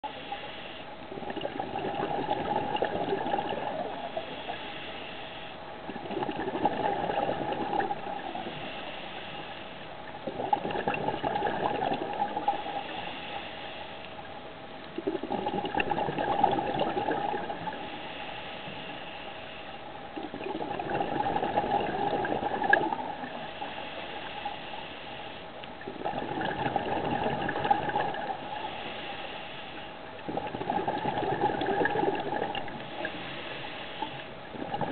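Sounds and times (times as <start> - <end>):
regulator breathing hiss: 0.1 - 1.0, 4.1 - 5.6, 8.4 - 10.0, 12.5 - 14.2, 17.8 - 19.9, 23.4 - 25.5, 28.4 - 30.0, 32.8 - 34.4
exhaled bubbles underwater: 1.0 - 4.7, 5.7 - 13.2, 14.8 - 18.0, 20.0 - 24.6, 25.7 - 28.9, 30.0 - 34.9.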